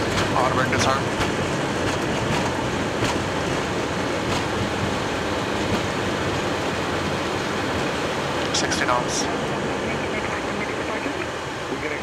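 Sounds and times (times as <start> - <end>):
jet engine and airflow roar: 0.0 - 12.0.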